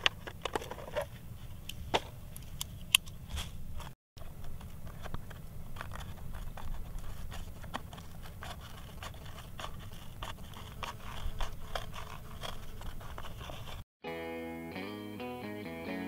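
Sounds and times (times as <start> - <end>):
shears cutting cardboard: 4.7 - 13.9.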